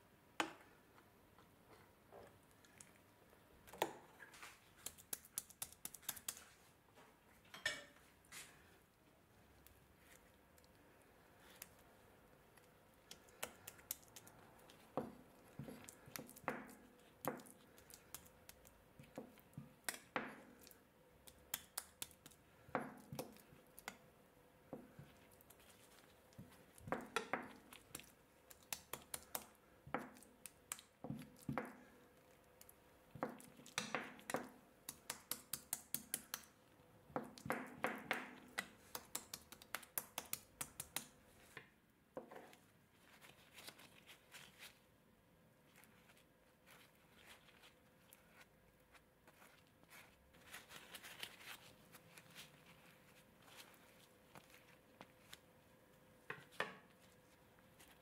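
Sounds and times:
spatula tapping and clicking: 4.8 - 6.4, 12.6 - 24.1, 24.7 - 31.8, 32.6 - 42.5
wet squishy butter scrapes: 25.0 - 29.6, 45.6 - 55.5.

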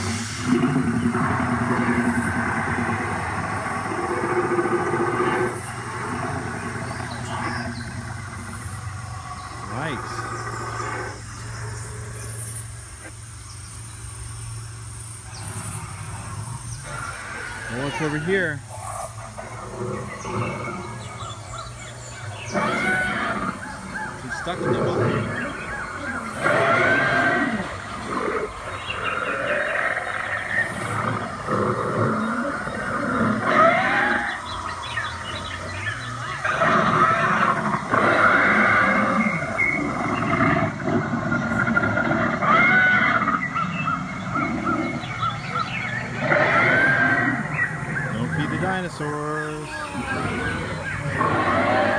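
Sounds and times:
recorded dinosaur roars and growls: 0.0 - 13.1, 15.1 - 51.9
low hum: 0.0 - 33.5
insects droning: 0.0 - 51.9.

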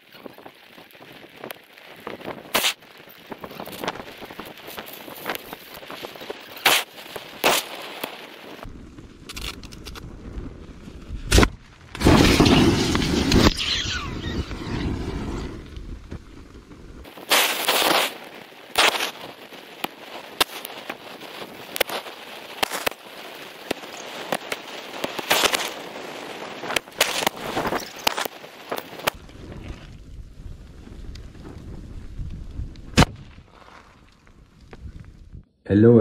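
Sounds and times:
battery cells cracking and popping: 0.0 - 10.5, 15.6 - 30.0
rushing jet of flame: 0.6 - 33.0.

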